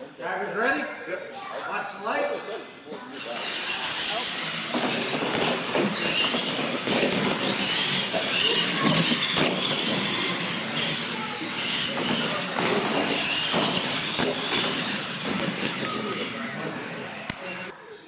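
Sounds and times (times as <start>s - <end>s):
toy truck motors whining: 3.2s - 17.7s
toy trucks knocking on landing: 4.7s - 16.4s.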